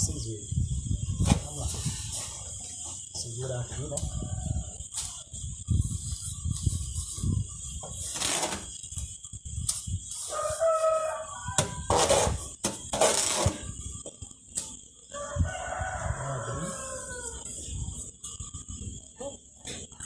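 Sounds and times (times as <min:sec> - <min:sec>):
rooster crowing: 0:03.9 - 0:04.9, 0:10.2 - 0:12.2, 0:15.1 - 0:17.8
trowel scraping wet cement: 0:11.6 - 0:13.7.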